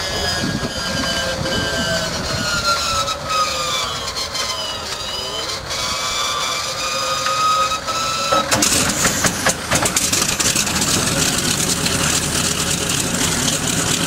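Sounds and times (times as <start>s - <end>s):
engine starter whining: 0.0s - 14.0s
engine firing with loud pops: 8.3s - 14.0s.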